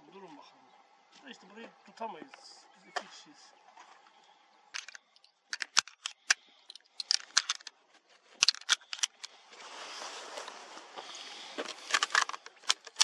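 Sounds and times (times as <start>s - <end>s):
sharp clicks and crackles: 4.8s - 7.8s, 8.4s - 9.3s, 11.6s - 13.0s.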